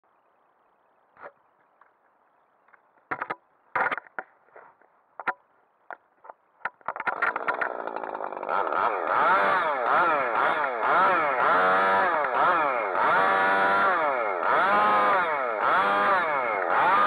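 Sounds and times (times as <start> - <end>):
chainsaw running: 6.9 - 17.0.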